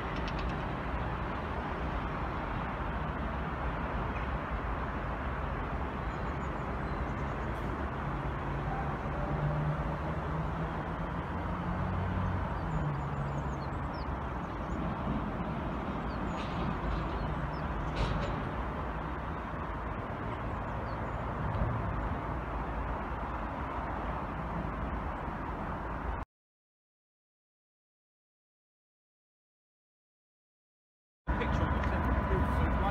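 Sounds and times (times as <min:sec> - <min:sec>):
distant locomotive engine hum: 0:00.0 - 0:26.2, 0:31.3 - 0:32.9
outdoor rumble: 0:07.3 - 0:25.2.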